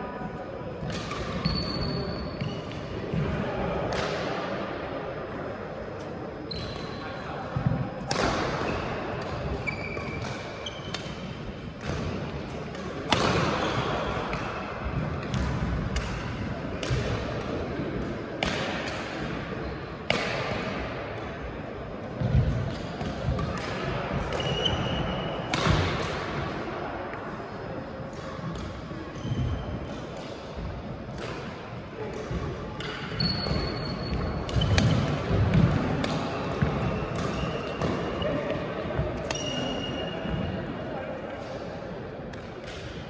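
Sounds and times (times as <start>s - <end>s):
rackets striking shuttlecock: 0.8s - 1.8s, 8.0s - 19.4s, 22.2s - 26.5s, 31.1s - 38.6s, 39.2s - 39.9s, 42.3s - 43.0s
shoes squeaking on court: 1.4s - 2.7s, 9.6s - 11.2s, 33.1s - 35.1s.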